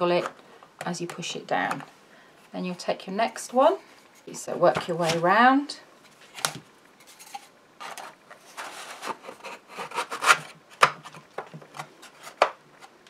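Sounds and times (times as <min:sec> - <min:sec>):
wood panels scraping in slots: 0:07.8 - 0:13.0.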